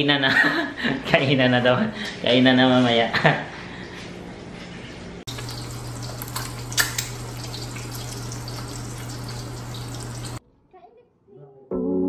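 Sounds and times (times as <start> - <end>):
egg sizzling in oil: 5.3 - 10.4.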